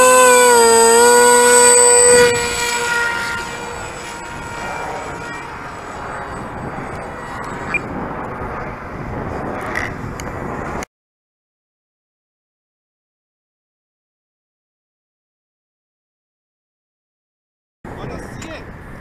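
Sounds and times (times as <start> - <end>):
model airplane motor whine: 0.0 - 10.8
rushing outdoor noise: 0.0 - 10.9.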